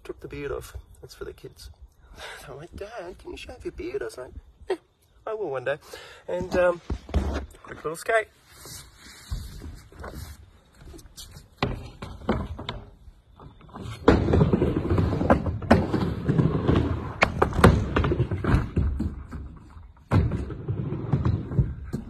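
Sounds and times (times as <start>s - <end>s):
skateboard wheels rolling on ramp: 9.2s - 22.0s
skateboard knocking against ramp: 11.6s - 22.0s.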